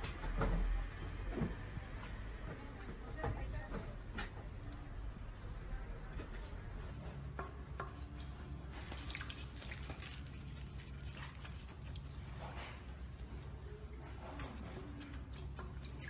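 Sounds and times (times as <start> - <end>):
bird splashing in water: 7.6 - 13.6.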